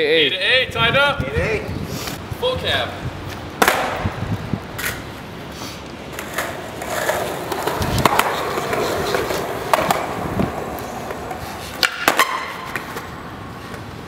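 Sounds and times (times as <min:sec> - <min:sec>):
skateboard rolling on concrete: 0:02.0 - 0:14.0
skateboard clacks: 0:03.6 - 0:04.1, 0:04.8 - 0:05.1, 0:06.1 - 0:14.0.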